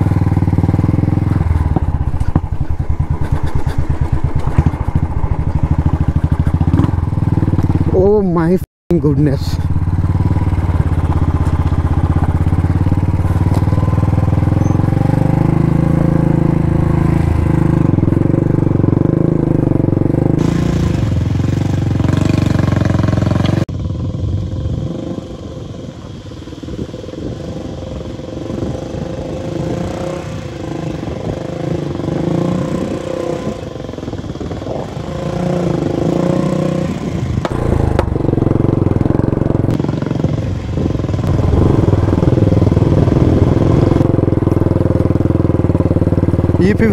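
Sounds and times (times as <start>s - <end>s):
motorcycle engine under load: 0.0s - 46.9s.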